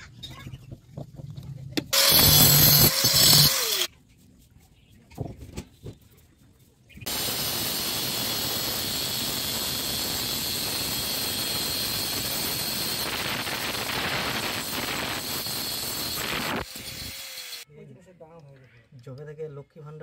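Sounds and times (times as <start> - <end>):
angle grinder cutting plastic pipe: 1.9 - 3.9, 7.1 - 17.7.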